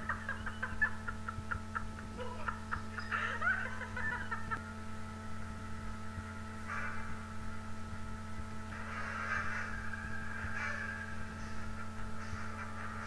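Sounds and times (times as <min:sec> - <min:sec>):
person snickering: 0:00.0 - 0:04.6.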